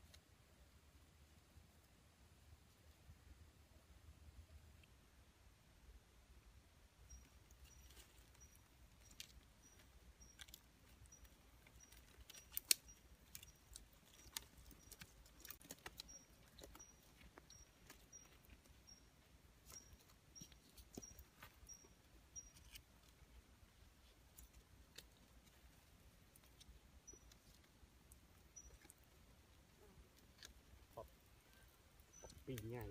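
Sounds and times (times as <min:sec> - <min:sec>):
campfire crackling: 0:07.1 - 0:32.9.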